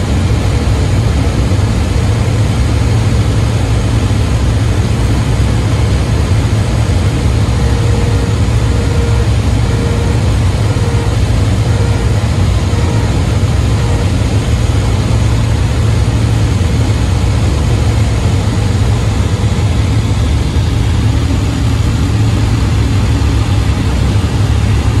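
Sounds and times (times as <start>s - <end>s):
aircraft engine droning: 0.0s - 25.0s.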